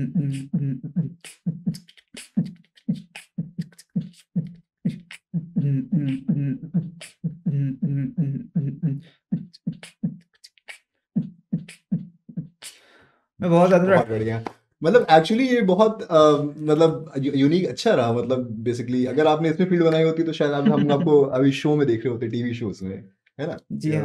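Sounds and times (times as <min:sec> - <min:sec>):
man beatboxing: 0:00.0 - 0:10.8, 0:11.6 - 0:12.8, 0:20.6 - 0:21.2.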